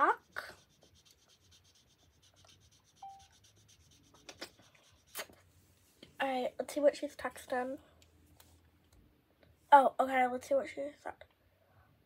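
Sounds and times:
marker scratching on paper: 0.0s - 5.4s.

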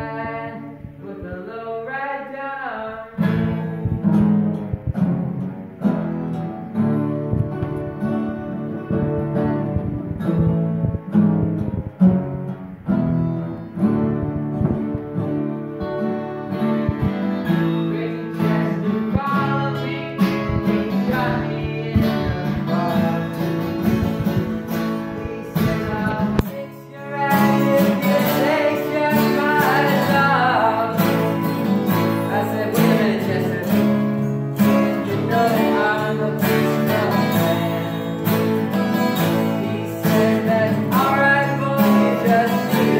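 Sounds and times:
acoustic guitars playing: 0.0s - 42.9s.

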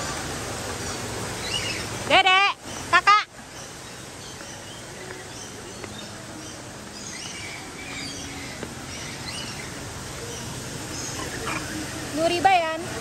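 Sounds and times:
birds chirping: 0.0s - 13.0s
outdoor background noise: 0.0s - 13.0s.

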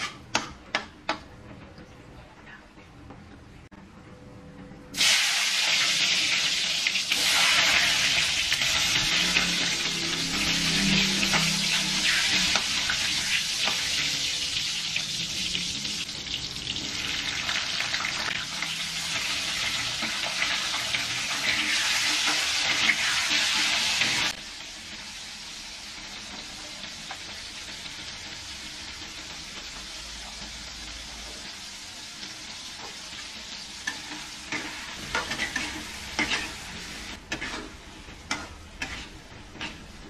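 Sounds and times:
vegetables sizzling in hot oil: 5.0s - 40.0s
metal spatula scraping wok: 6.9s - 14.8s, 33.8s - 40.0s.

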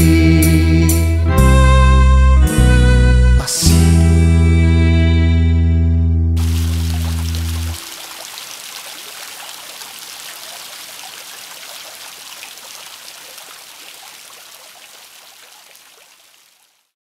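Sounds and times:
fountain water splashing into pool: 6.4s - 17.0s.

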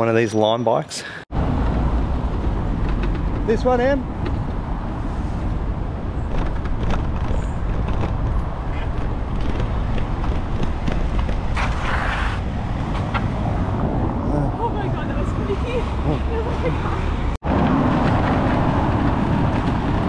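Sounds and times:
city traffic: 0.8s - 20.0s
road noise: 0.8s - 20.0s
wind on microphone: 1.4s - 20.0s
rattles over cobblestones: 2.2s - 13.2s.

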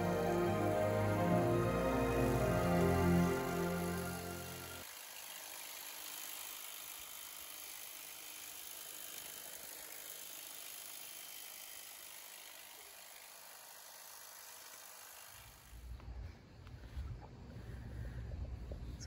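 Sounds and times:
electric hedge trimmer whirring: 0.0s - 16.0s.

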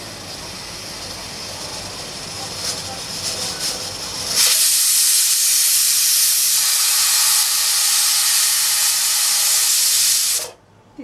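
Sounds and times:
pressure cooker steam hissing: 0.0s - 10.6s
pressure cooker whistle sputtering: 3.3s - 10.6s.

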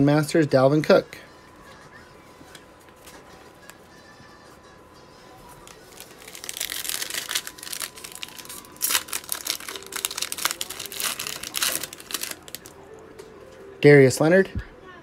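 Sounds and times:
foil wrapper crinkling and tearing: 5.5s - 12.8s.

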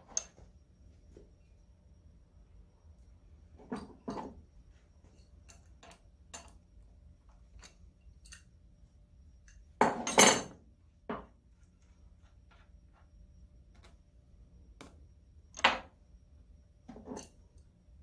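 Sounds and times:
wrench clinking on metal bolts: 5.4s - 6.6s, 7.6s - 8.5s.

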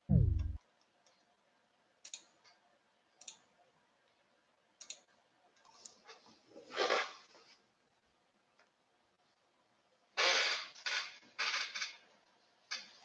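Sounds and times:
falling electronic tone: 0.0s - 0.6s
sharp mouse clicks: 4.8s - 5.1s.

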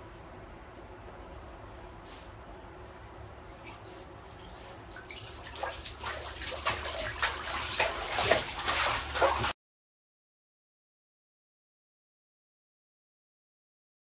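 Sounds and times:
dog splashing in bathwater: 3.6s - 9.6s.

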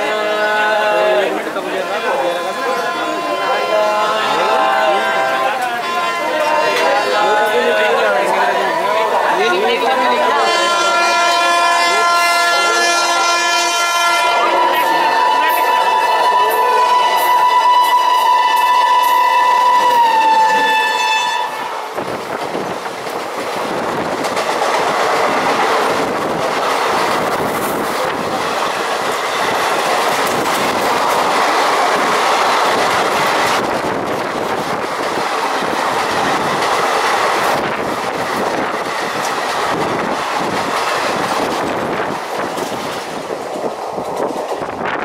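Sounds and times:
train horn: 0.0s - 9.4s, 10.0s - 22.0s
train wheels clickety-clack: 15.4s - 45.0s.

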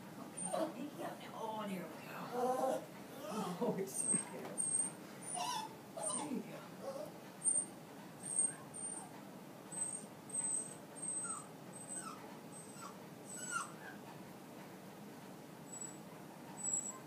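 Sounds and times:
dog whimpering: 0.3s - 0.9s, 2.2s - 9.1s, 9.7s - 14.0s, 15.7s - 17.0s.

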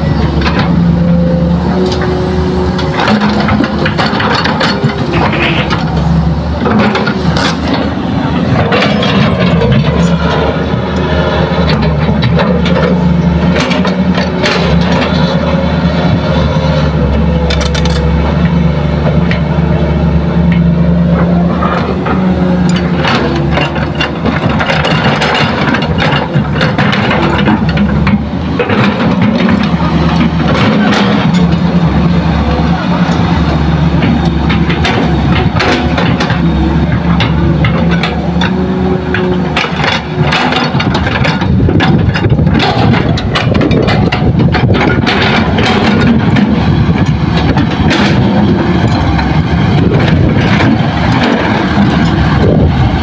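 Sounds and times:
excavator diesel engine running: 0.0s - 53.0s.

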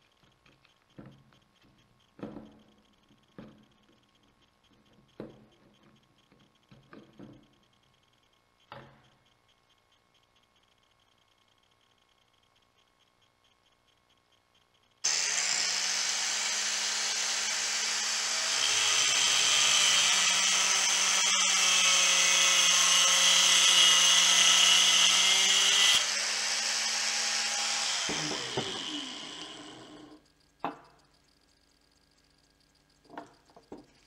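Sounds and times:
angle grinder cutting steel: 15.0s - 30.2s.

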